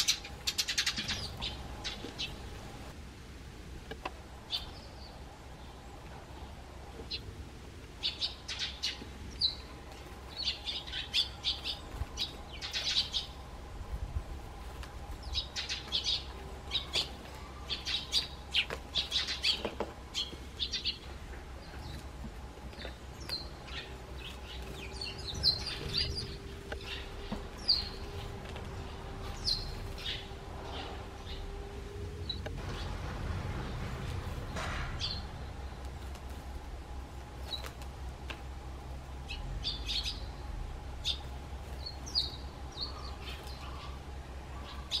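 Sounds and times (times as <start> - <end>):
sparrows chirping: 0.0 - 3.0, 4.3 - 45.0
faint steady hum: 0.0 - 45.0.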